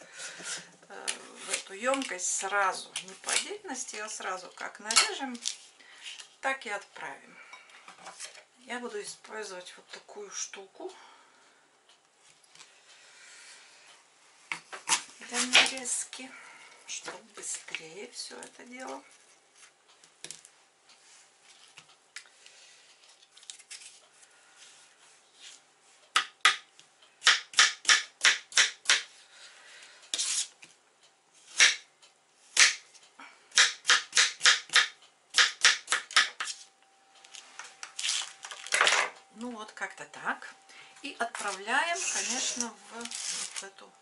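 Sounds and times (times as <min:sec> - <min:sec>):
knife chopping on plastic board: 0:27.2 - 0:29.1, 0:31.6 - 0:31.8, 0:33.6 - 0:36.5.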